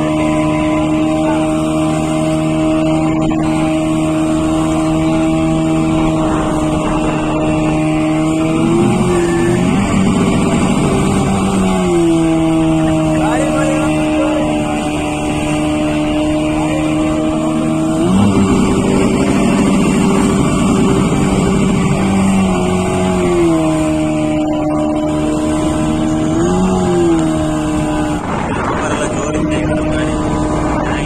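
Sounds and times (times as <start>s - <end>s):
boat motor running: 0.0s - 31.0s
water rushing past: 0.0s - 31.0s
wind rushing: 4.2s - 12.8s, 25.2s - 31.0s.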